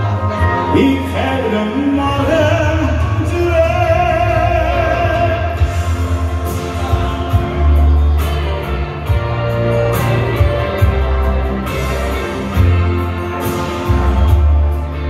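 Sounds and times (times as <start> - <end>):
person singing: 0.0 - 15.0
pop song with heavy bass: 0.0 - 15.0.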